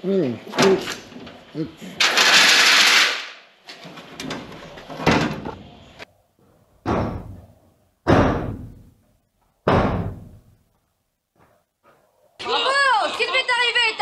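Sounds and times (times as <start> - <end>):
metal van tailgate slamming: 8.0 - 8.8, 9.6 - 10.4.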